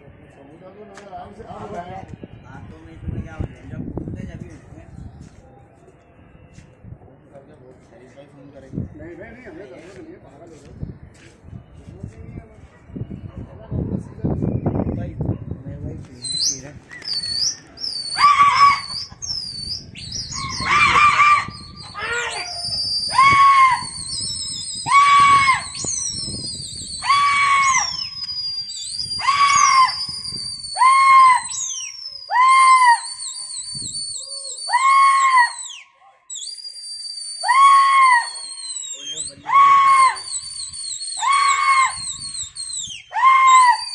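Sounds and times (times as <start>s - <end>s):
shrill gliding whistles: 16.2s - 43.9s.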